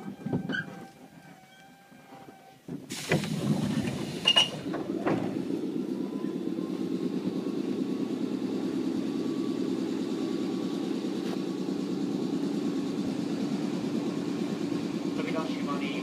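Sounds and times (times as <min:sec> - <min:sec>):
high door squeak: 0:00.0 - 0:02.6, 0:04.2 - 0:05.3
train running noise: 0:00.0 - 0:16.0
train door sliding shut: 0:02.2 - 0:05.5.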